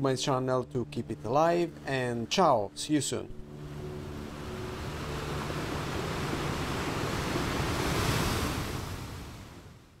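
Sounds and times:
ocean waves washing: 3.4 - 10.0.

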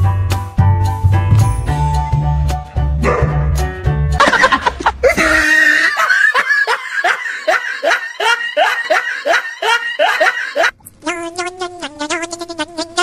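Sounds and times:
person laughing hard: 4.2 - 10.7.

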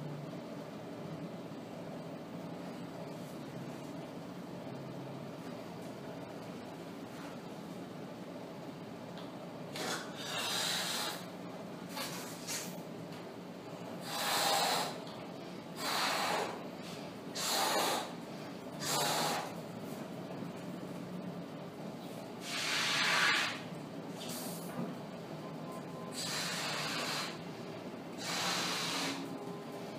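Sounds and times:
breathy puffs into balloon: 9.8 - 11.3, 15.8 - 16.6, 17.4 - 18.2, 18.8 - 19.6, 26.2 - 27.4, 28.2 - 29.3.

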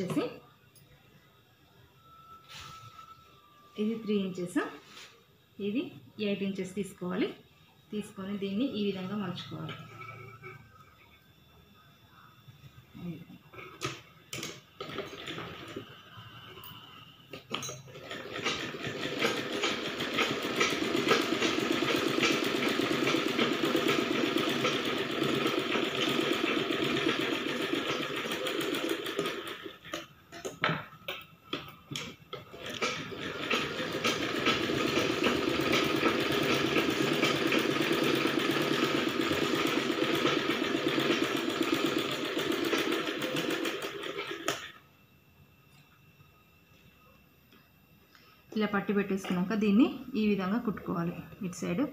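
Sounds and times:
sewing machine running: 14.8 - 16.0, 17.9 - 29.9, 32.3 - 44.8.

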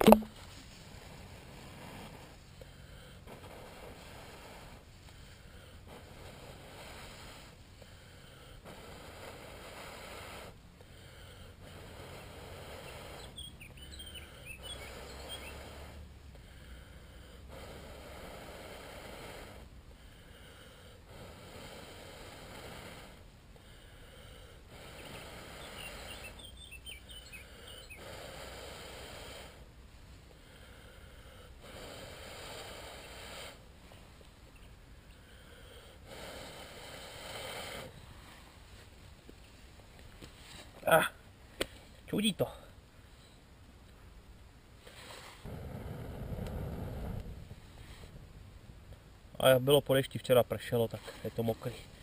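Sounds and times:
person blowing long breaths: 14.0 - 29.7, 30.3 - 33.7, 34.9 - 38.6.

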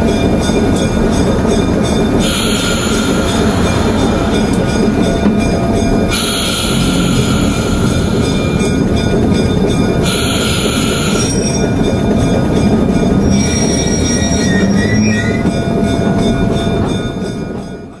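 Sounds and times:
diesel locomotive engine rumble: 0.0 - 18.0
air hiss: 2.2 - 4.7, 6.1 - 8.6
wheel squeal: 10.0 - 11.9, 12.6 - 16.3.

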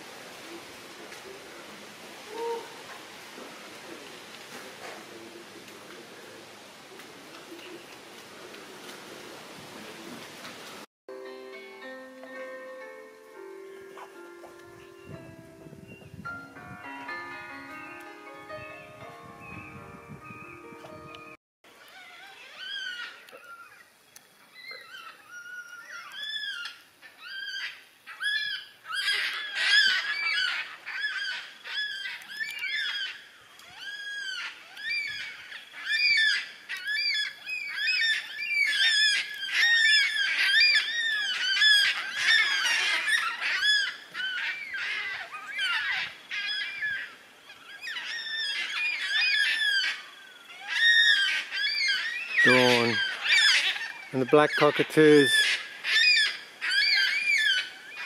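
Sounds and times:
cockatoos calling: 1.2 - 3.3, 21.7 - 58.0.

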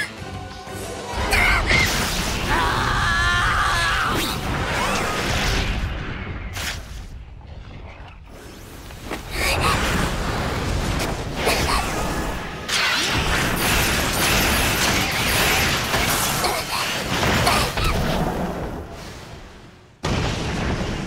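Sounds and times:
music: 0.0 - 3.0.

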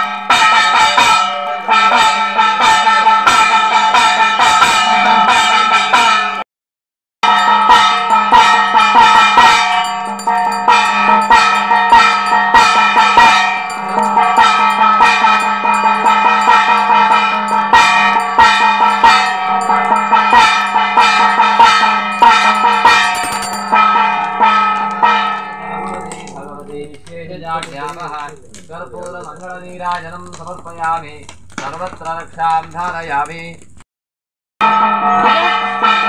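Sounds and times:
bells ringing fast: 0.0 - 6.4, 7.2 - 28.0, 34.6 - 36.0
drum beats: 0.0 - 6.4, 7.2 - 33.8.

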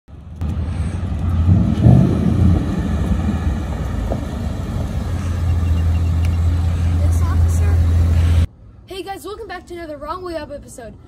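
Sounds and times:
car engine and exhaust rumble: 0.1 - 8.5.

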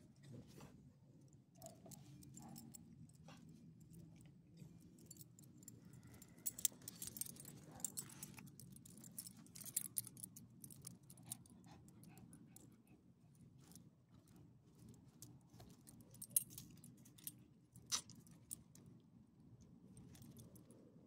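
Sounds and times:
dog collar tags jingling: 5.0 - 11.4.

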